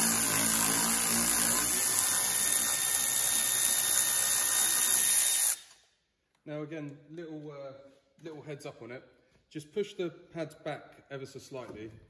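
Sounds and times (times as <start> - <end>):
cordless power tool running: 0.0 - 5.6.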